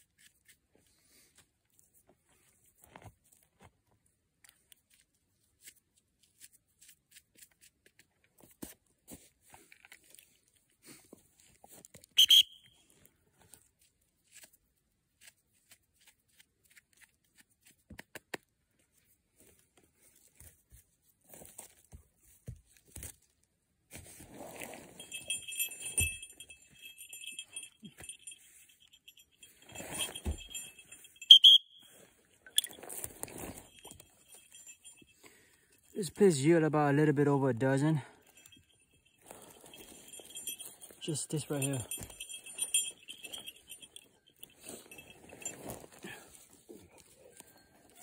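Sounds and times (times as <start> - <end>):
high-pitched metallic jingling: 24.8 - 48.0.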